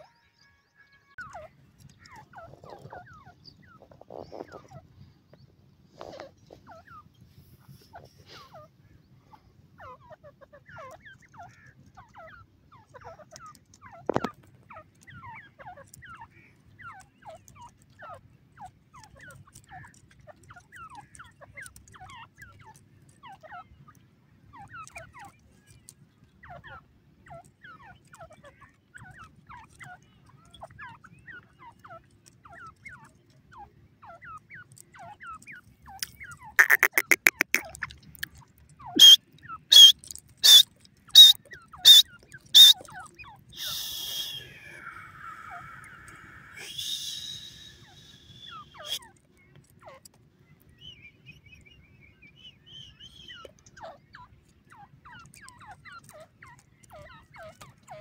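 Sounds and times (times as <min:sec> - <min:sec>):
francolin chirping: 0:24.5 - 0:49.1
loud high bird calls: 0:26.4 - 0:37.9, 0:38.8 - 0:49.2.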